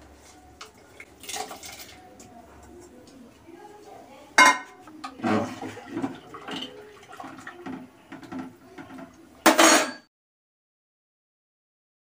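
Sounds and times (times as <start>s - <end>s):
ladle clinking pot: 4.4s - 6.7s, 7.7s - 10.1s.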